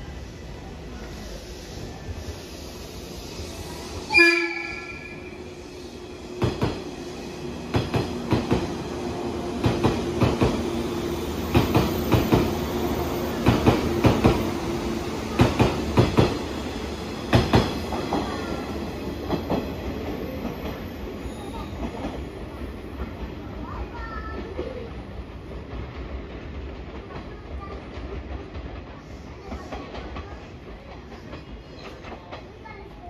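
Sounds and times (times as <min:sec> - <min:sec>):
train hum: 0:00.0 - 0:33.0
train wheels clacking over rail joints: 0:17.3 - 0:18.5.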